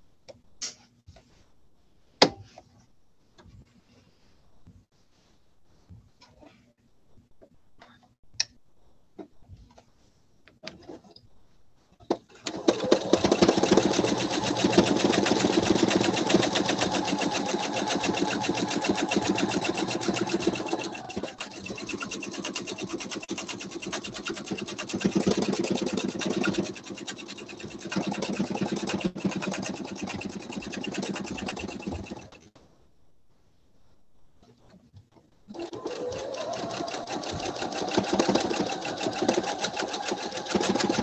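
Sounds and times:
sewing machine stitching: 12.3s - 32.5s, 35.5s - 41.0s.

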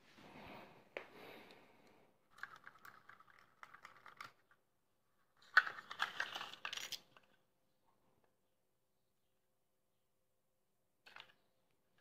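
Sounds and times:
plastic parts clicking and rattling: 2.3s - 4.6s, 5.4s - 7.5s, 11.0s - 12.0s.

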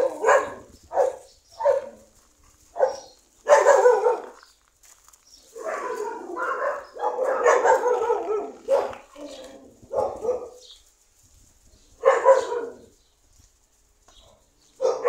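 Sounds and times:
dogs barking: 0.0s - 4.5s, 5.5s - 10.7s, 12.0s - 13.0s, 14.1s - 15.0s.

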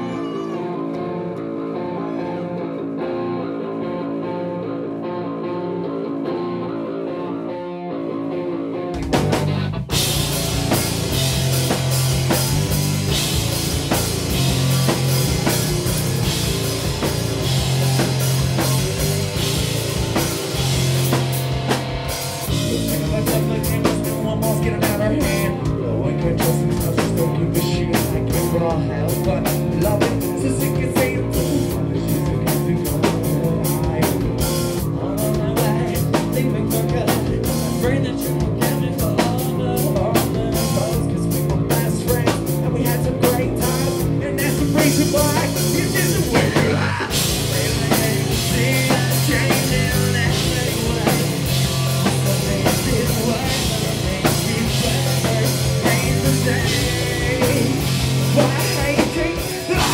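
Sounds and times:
person singing: 0.0s - 4.6s, 22.4s - 59.9s
rock band playing live: 0.0s - 59.9s.

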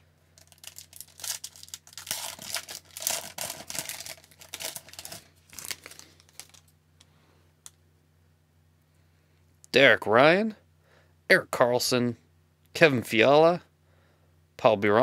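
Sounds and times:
foil wrapper tearing and crinkling: 0.4s - 6.7s.

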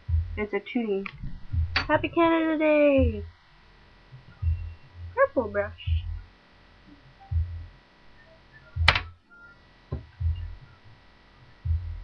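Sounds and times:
sharp click: 8.8s - 9.1s.

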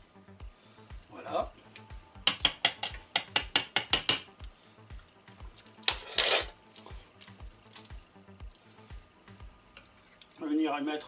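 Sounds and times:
kitchenware clinking against pan: 2.2s - 4.3s.

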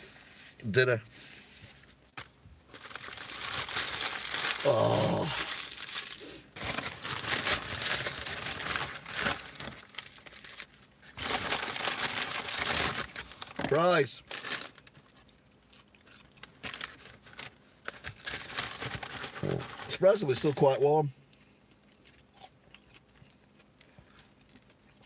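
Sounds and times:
paper bag crinkling: 2.7s - 15.1s, 16.6s - 20.5s
man humming: 4.6s - 5.5s.

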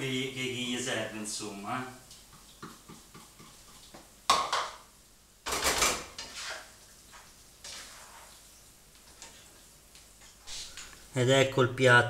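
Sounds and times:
utensil scraping a frying pan: 6.1s - 9.6s.

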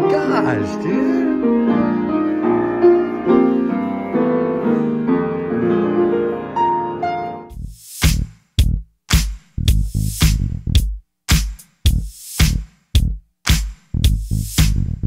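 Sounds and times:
upright piano chords and melody: 0.0s - 7.5s
electronic drum beats with heavy bass: 7.5s - 15.0s.

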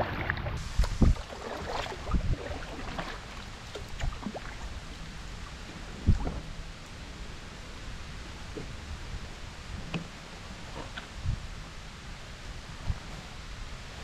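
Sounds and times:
water washing: 0.0s - 6.3s
paddle splashing in water: 0.0s - 6.6s
wind: 0.0s - 14.0s.

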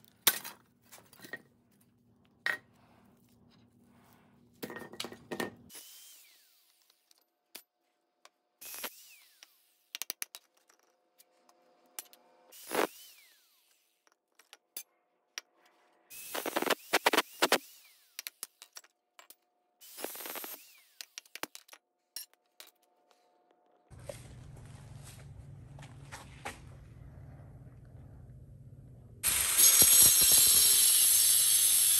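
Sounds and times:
metal parts clinking and knocking: 18.2s - 19.5s, 21.0s - 23.1s
low hum: 23.9s - 29.3s.

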